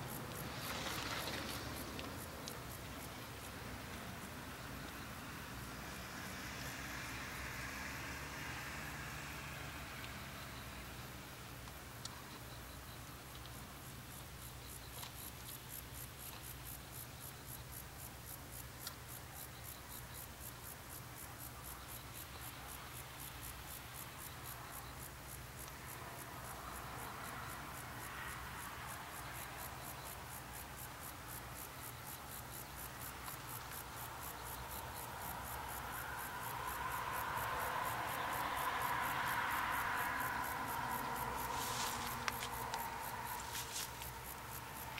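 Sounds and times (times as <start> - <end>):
insects chirping: 0.0 - 44.9.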